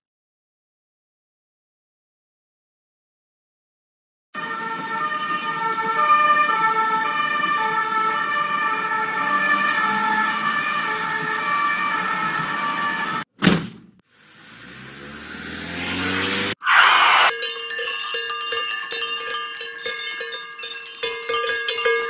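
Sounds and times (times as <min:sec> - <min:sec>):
police siren wailing: 0:04.4 - 0:13.3
loud burst of noise: 0:16.5 - 0:17.3.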